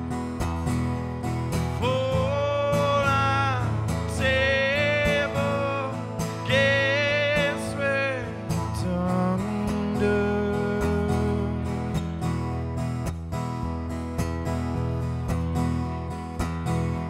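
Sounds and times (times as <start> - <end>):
acoustic guitar strumming: 0.0 - 17.0
man singing: 1.8 - 12.0.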